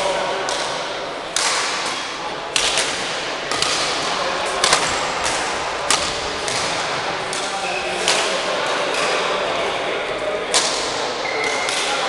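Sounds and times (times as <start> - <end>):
racket striking shuttlecock: 0.5 - 9.1.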